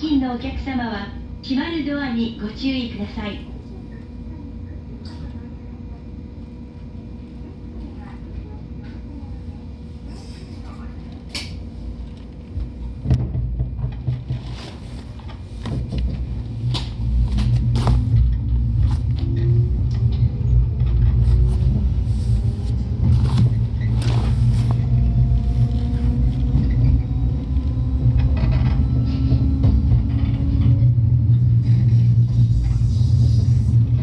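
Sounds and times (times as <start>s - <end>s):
train low rumble: 0.0s - 34.0s
train clunk: 22.8s - 32.8s.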